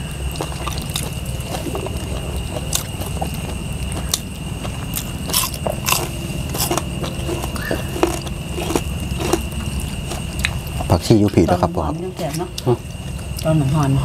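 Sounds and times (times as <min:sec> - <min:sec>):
people chewing and crunching: 0:00.0 - 0:14.0
steady low hum: 0:00.0 - 0:14.0.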